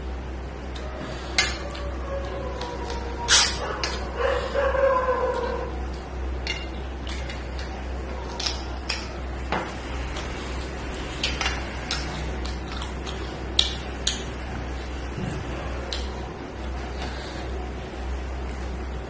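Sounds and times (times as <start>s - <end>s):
chewing: 10.0s - 17.6s.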